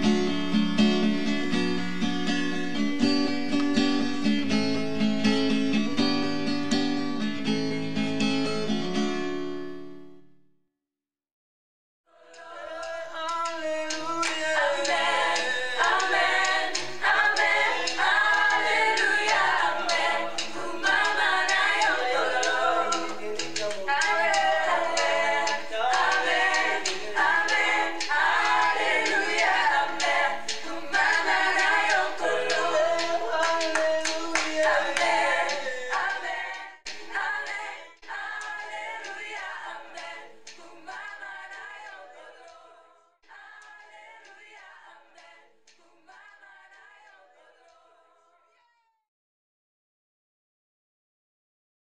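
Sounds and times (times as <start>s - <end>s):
choir singing: 12.1s - 48.4s
hand clapping: 12.4s - 42.6s, 43.6s - 46.8s.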